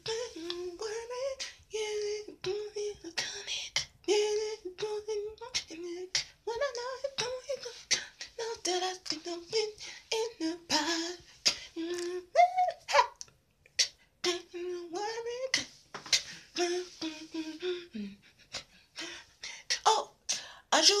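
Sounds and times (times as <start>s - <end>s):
woman singing unaccompanied: 0.0s - 13.2s, 14.2s - 18.2s, 19.0s - 21.0s.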